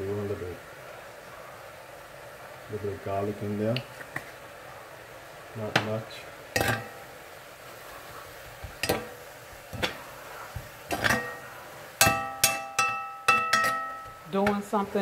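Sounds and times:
spoon knocking on cooking pot: 8.6 - 14.7.

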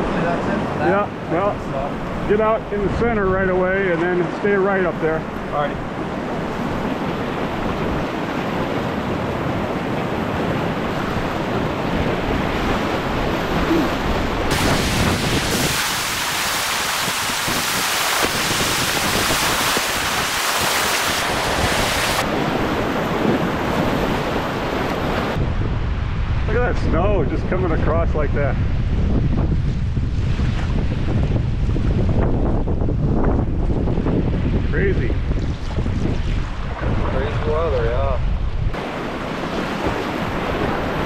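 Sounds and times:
water splashing close: 10.6 - 25.4
river rapids rushing: 12.1 - 23.6.

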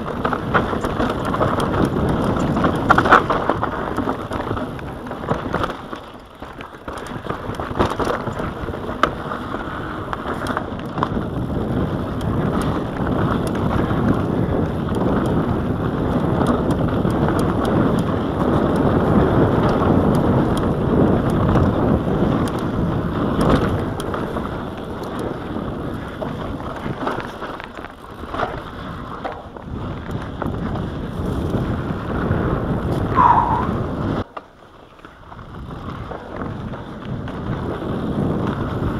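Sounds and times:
wind rushing over microphone: 0.0 - 6.0, 6.9 - 27.5, 28.1 - 34.3, 35.2 - 38.9
bike rattling and clicking: 0.0 - 38.9
tyres rolling on dirt: 0.0 - 38.9
brief squeak: 33.2 - 33.8.

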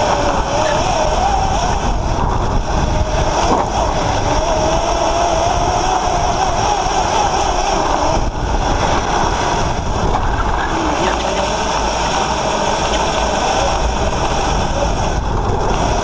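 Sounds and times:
electric motor whine: 0.0 - 16.0
tyre noise: 0.0 - 16.0
wind rush on microphone: 0.0 - 16.0.

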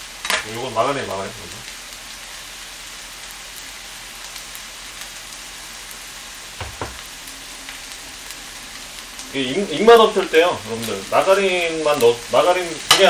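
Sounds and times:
rice sizzling in frying pan: 0.0 - 13.0
spoon knocking on pan: 6.6 - 7.1.

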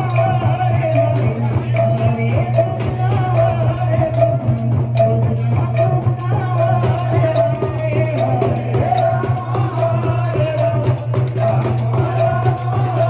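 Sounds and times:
drum: 0.0 - 13.0
hand cymbals ringing: 0.0 - 13.0.

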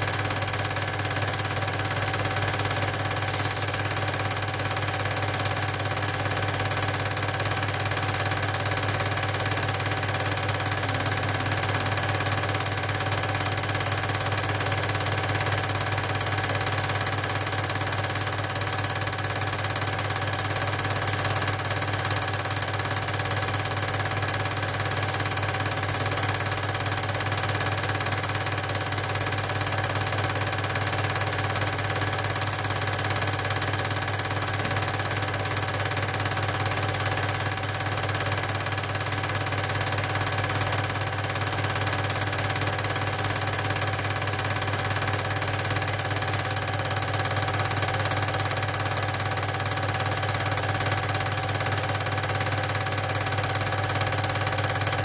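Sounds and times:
projector mechanical whirr: 2.7 - 4.8.

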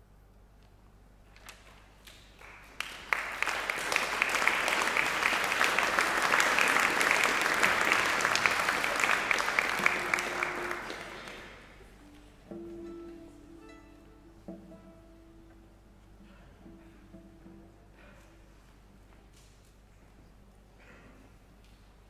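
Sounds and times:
audience applauding: 2.1 - 12.0.

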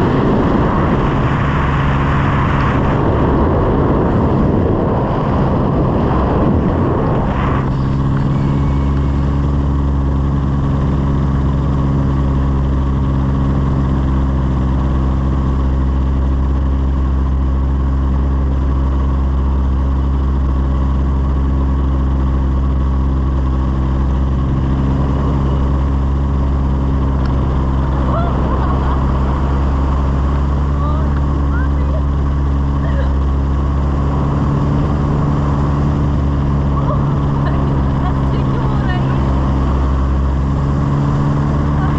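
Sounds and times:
rush of noise: 0.0 - 14.4, 23.4 - 41.9
propeller aircraft engine drone: 0.0 - 41.9.

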